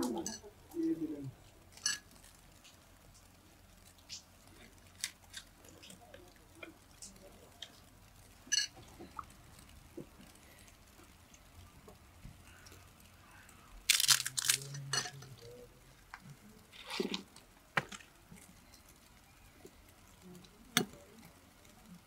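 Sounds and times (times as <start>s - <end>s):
crinkling and rustling: 0.0s - 22.0s.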